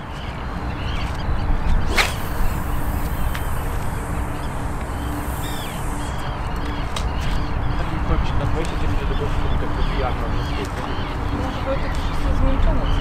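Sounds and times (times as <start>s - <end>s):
birds chirping: 0.0s - 13.0s
fishing rod swishing through air: 1.8s - 4.4s
faint high hiss: 1.9s - 6.6s.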